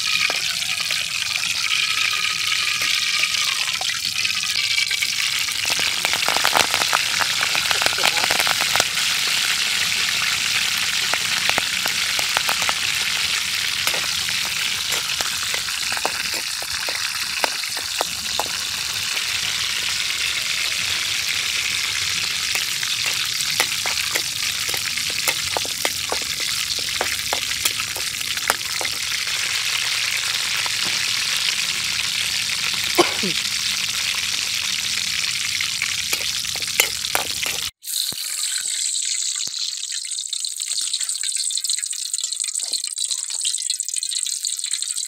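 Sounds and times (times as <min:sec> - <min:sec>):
leaves deep-frying in hot oil: 0:00.0 - 0:45.0
metal spatula stirring in wok: 0:11.0 - 0:19.8, 0:21.7 - 0:31.0, 0:36.0 - 0:37.7.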